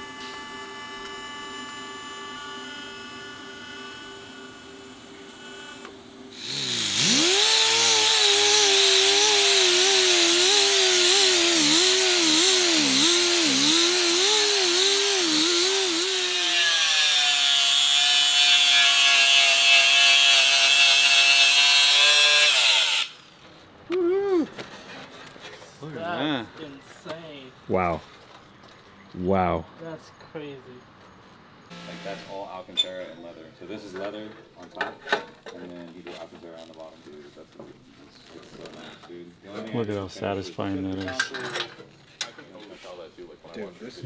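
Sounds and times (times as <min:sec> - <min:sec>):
power tool working metal: 0:05.3 - 0:23.3, 0:31.7 - 0:32.4.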